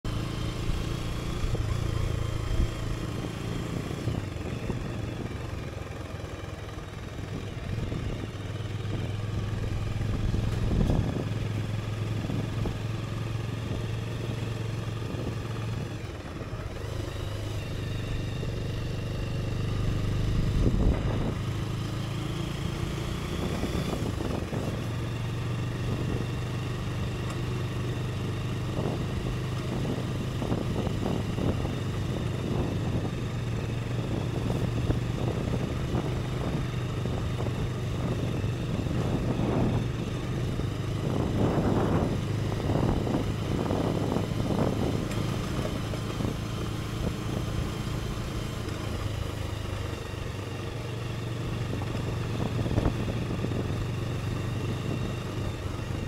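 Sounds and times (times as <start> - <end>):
motorcycle engine running: 0.0 - 56.0
tyre and wind noise: 8.9 - 12.9, 28.6 - 47.5.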